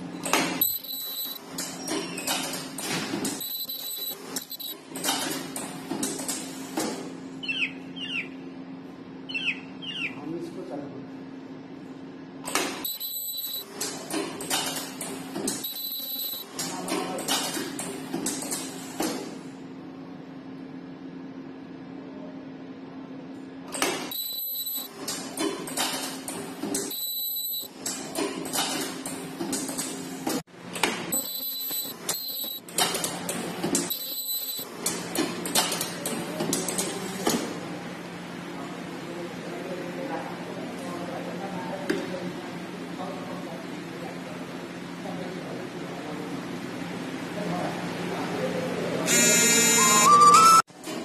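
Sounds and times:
welding machine humming: 3.3s - 4.8s, 49.1s - 50.1s
machine humming: 49.1s - 50.3s.

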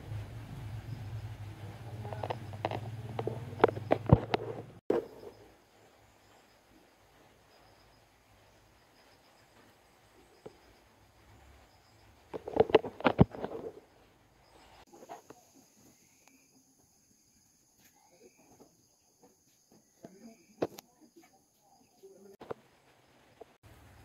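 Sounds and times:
phone handling rustling and knocking: 3.6s - 5.2s.

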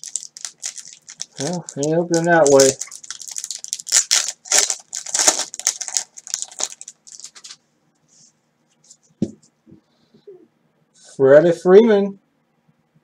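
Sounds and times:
foil wrapper tearing and crinkling: 0.0s - 7.6s.

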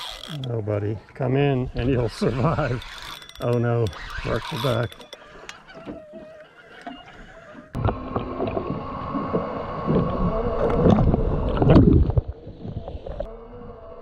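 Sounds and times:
fishing reel handling: 0.0s - 0.6s, 1.9s - 7.0s
muffled underwater rushing water: 7.8s - 13.3s.

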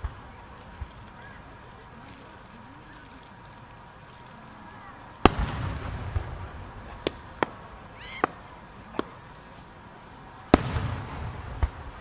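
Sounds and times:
firework cracks: 0.0s - 12.0s
loud firework bang: 5.2s - 8.4s, 10.5s - 12.0s.

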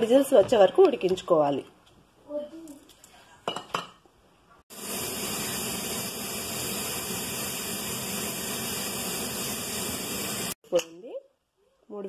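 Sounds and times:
pressure cooker steam hissing: 4.7s - 10.6s.

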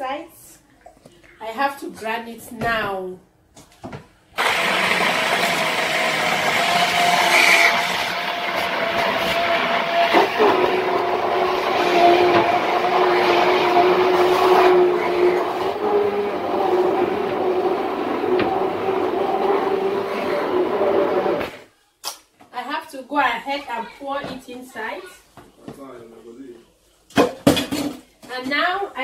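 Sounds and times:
hand blender motor whine: 4.4s - 21.7s.

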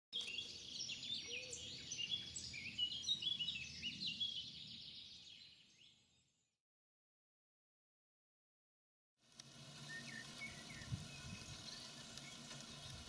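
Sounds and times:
songbirds singing: 0.2s - 6.5s, 9.4s - 13.0s.

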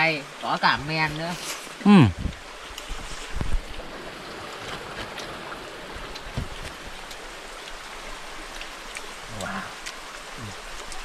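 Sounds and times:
running water rushing: 0.0s - 11.0s.

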